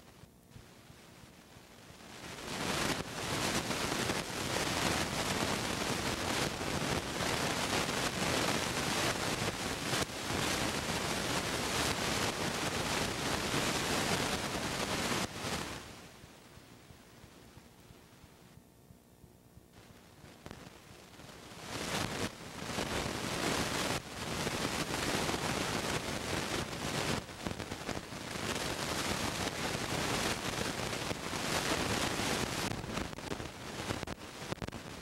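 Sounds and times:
loud steady tape hiss: 0.0 - 35.0.

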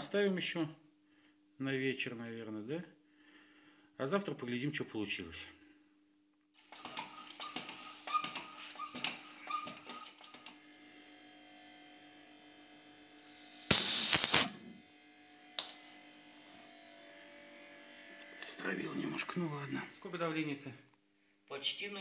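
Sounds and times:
foot pump squeaking: 6.7 - 10.5
hiss of escaping air: 13.2 - 14.6.

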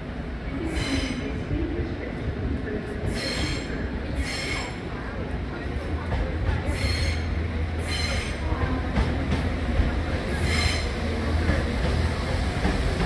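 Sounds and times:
train low rumble: 0.0 - 13.0.

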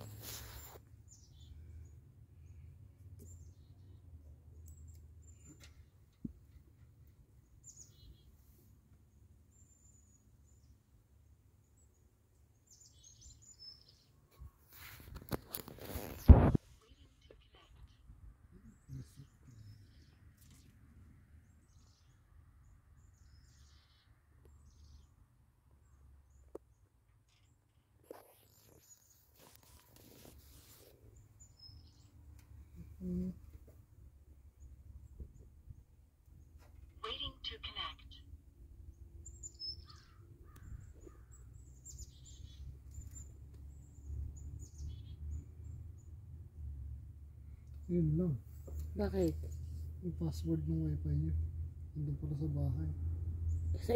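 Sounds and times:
distant bird chirps: 0.0 - 15.0, 15.9 - 53.9
lower bird calls: 30.1 - 33.7, 39.2 - 46.2.

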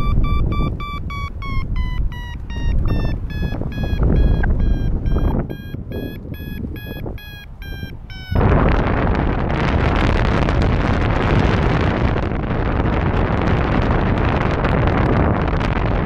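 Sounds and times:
variometer beeping: 0.0 - 8.8
wind rumble on microphone: 0.0 - 16.0.

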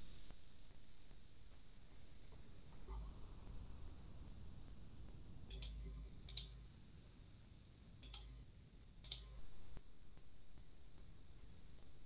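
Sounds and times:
computer mouse clicks: 5.5 - 6.6, 8.0 - 8.4, 9.0 - 9.5.

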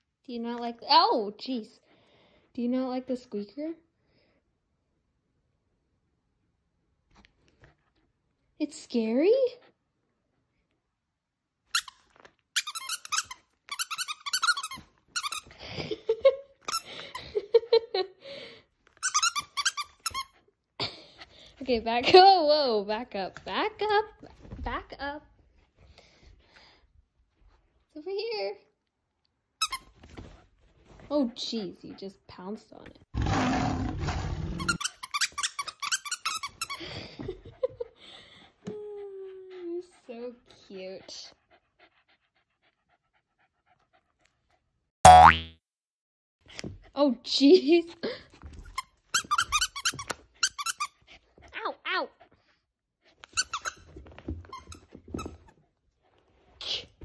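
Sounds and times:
dog toy squeaking: 12.6 - 15.5
dog growling: 33.2 - 34.8.

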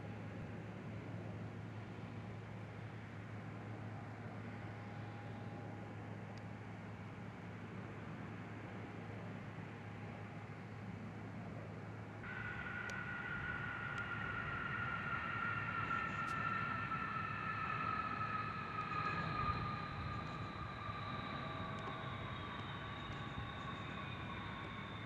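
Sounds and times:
jet engine whine: 0.0 - 25.0
low rumble: 12.2 - 24.8.

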